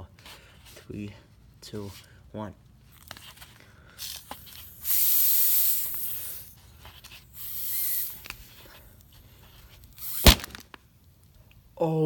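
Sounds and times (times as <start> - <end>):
gas hissing from bottle: 4.0 - 10.8.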